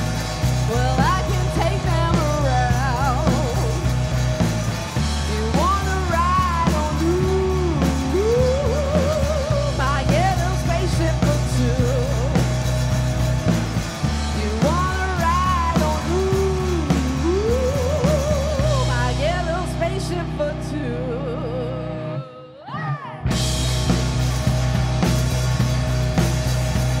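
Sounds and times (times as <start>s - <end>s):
drum kit: 0.0s - 20.4s, 23.3s - 27.0s
electric bass: 0.0s - 22.4s, 23.2s - 27.0s
electric guitar: 0.0s - 27.0s
woman singing: 0.6s - 4.3s, 5.1s - 12.6s, 14.2s - 23.4s.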